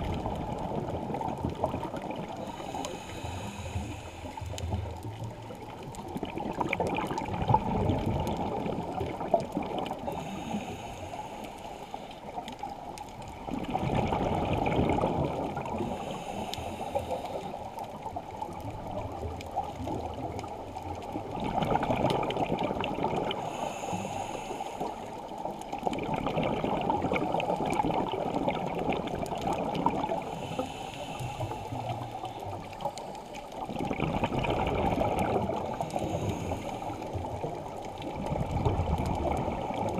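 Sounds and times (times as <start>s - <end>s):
exhaled air bubbling underwater: 0.0s - 39.9s
faint hissing inhales: 2.2s - 5.1s, 10.0s - 12.9s, 15.6s - 18.1s, 23.2s - 25.8s, 30.1s - 33.6s, 35.1s - 38.0s.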